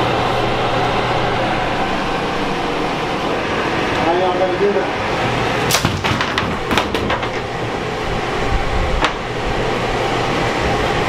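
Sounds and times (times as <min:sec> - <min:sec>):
loud fan-like running noise: 0:00.0 - 0:11.0
wooden parts knocking and clattering: 0:05.8 - 0:07.5.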